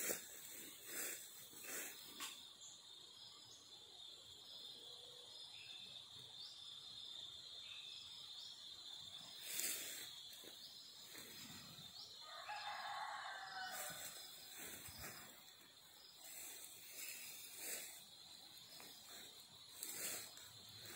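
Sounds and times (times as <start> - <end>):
high insect drone: 0.0 - 20.9
rooster crowing: 12.2 - 15.4.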